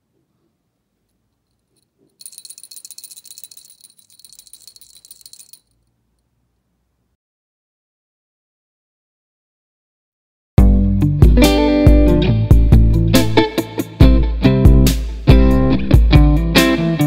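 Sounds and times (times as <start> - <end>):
jingle bell jingling: 1.4 - 5.8.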